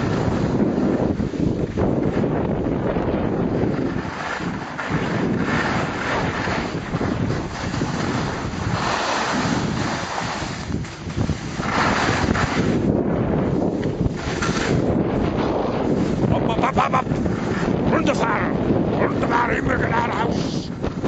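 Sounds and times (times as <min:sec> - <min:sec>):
skis sliding over snow: 0:00.0 - 0:01.2, 0:03.7 - 0:18.5
wind buffeting microphone: 0:00.0 - 0:21.0.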